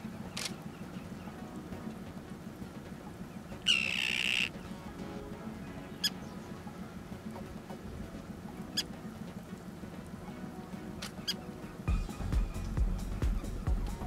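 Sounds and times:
tern calling: 0:03.5 - 0:04.7.

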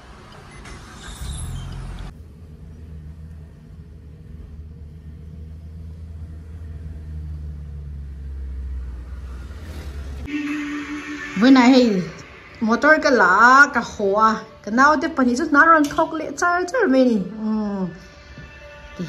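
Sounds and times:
car engine and road rumble: 0:00.0 - 0:10.3.

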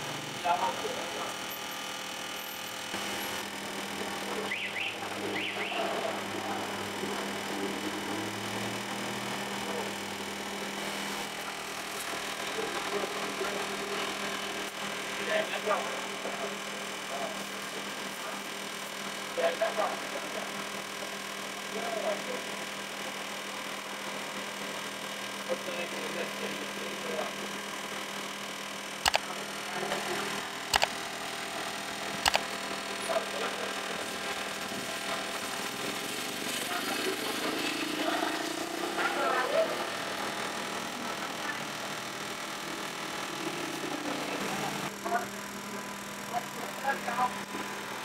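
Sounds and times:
electrical hum: 0:00.0 - 0:48.0
faint voices: 0:03.9 - 0:10.8, 0:36.6 - 0:41.9
sharp clicks: 0:29.0 - 0:29.4, 0:30.7 - 0:31.0, 0:32.2 - 0:32.6.

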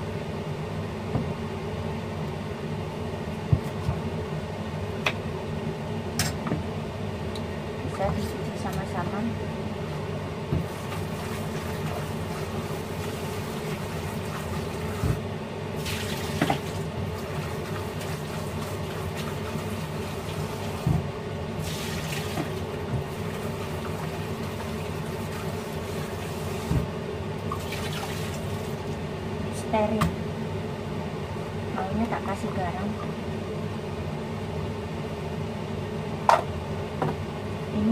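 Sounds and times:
leaves rinsed by hand: 0:10.6 - 0:15.2, 0:15.8 - 0:21.0, 0:21.6 - 0:26.9, 0:27.5 - 0:28.9
tap water running into bowl: 0:15.8 - 0:20.9, 0:21.6 - 0:26.8.

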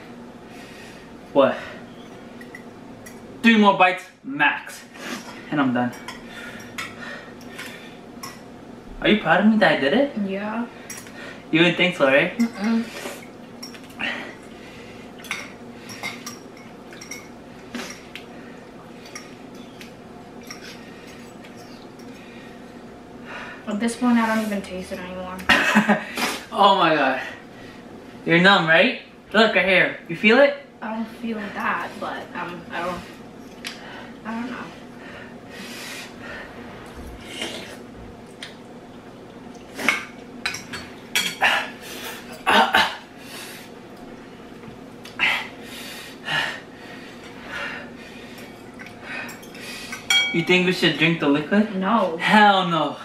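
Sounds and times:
forks clinking against bowls: 0:12.4 - 0:12.8, 0:15.2 - 0:18.1, 0:20.4 - 0:22.2, 0:39.9 - 0:41.4, 0:48.8 - 0:50.6.

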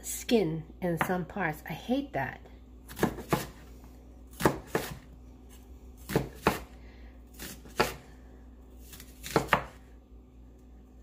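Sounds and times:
knife slicing onion: 0:02.8 - 0:08.2, 0:08.8 - 0:09.9.

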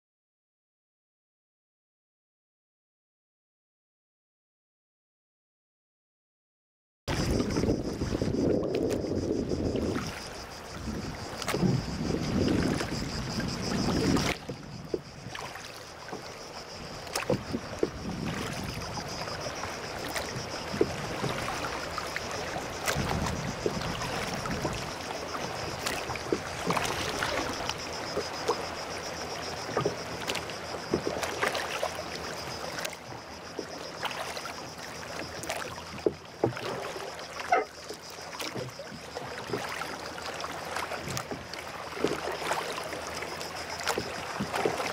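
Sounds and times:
low wind rumble: 0:07.1 - 0:15.4, 0:16.6 - 0:30.1
water sloshing against hull: 0:07.1 - 0:44.9.

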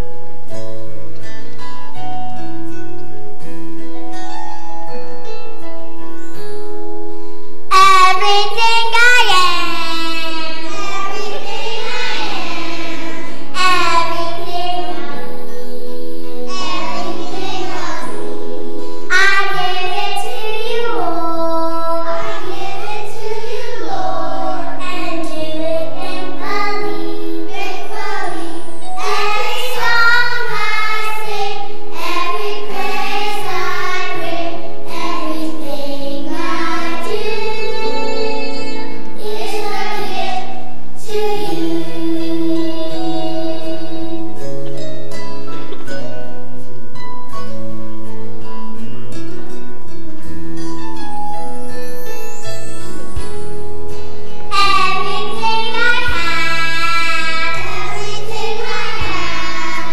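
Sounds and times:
instrumental accompaniment: 0:00.0 - 0:59.9
girl singing into microphone: 0:07.7 - 0:44.4, 0:54.5 - 0:59.9.

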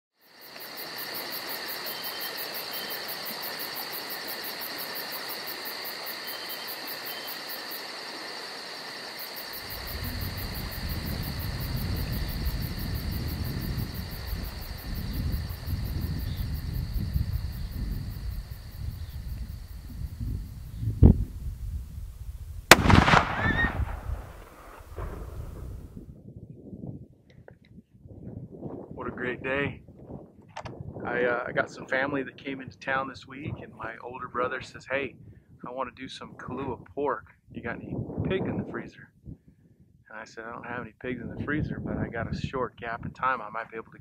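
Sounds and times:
crickets chirping: 0:00.2 - 0:26.0
wind buffeting microphone: 0:09.6 - 0:40.0, 0:41.0 - 0:43.3.

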